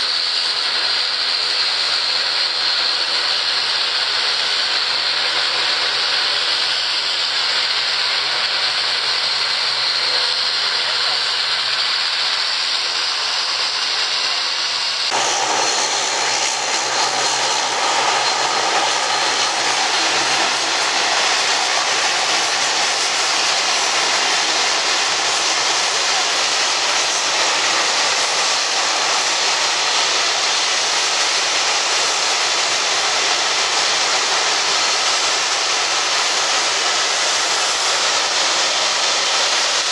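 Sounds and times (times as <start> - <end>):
jet engines whining: 0.0 - 39.9.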